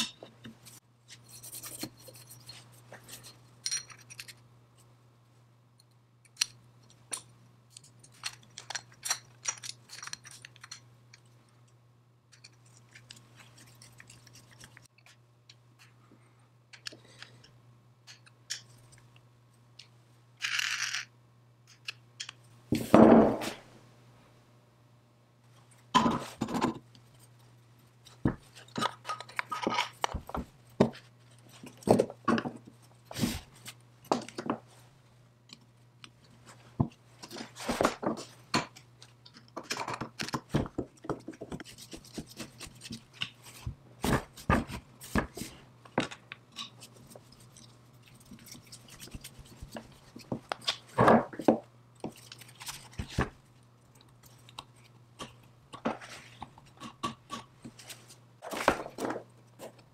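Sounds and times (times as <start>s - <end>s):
metal parts clicking and scraping: 0.0s - 4.4s, 5.8s - 11.3s, 12.3s - 15.2s, 20.4s - 21.1s.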